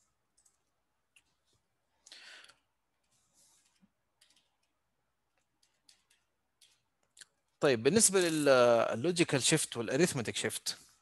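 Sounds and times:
computer mouse clicks: 0.0 - 1.4, 2.5 - 4.8, 5.4 - 7.4.

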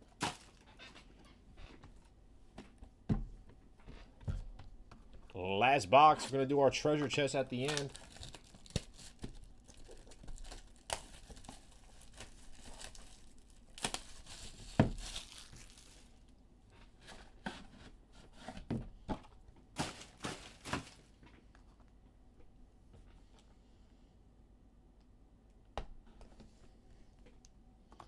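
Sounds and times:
plastic shrink wrap tearing and crinkling: 7.3 - 16.2, 19.8 - 21.1.

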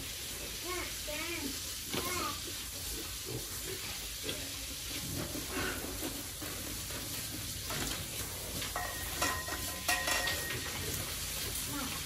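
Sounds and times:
crackling sizzle-like noise: 0.0 - 12.0.

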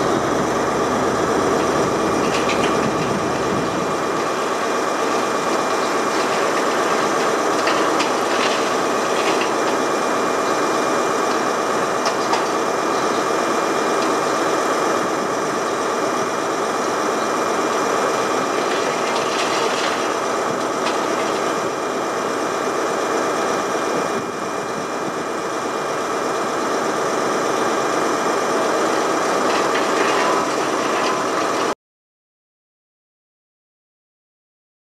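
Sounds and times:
excavator engine and hydraulics: 0.0 - 31.8
concrete cracking: 2.1 - 10.7, 18.3 - 21.7.

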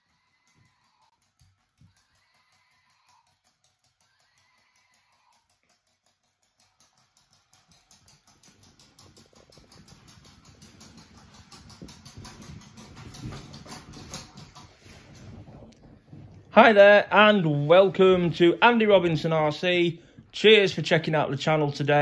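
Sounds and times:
walking toy mechanism clicking: 0.0 - 15.0.

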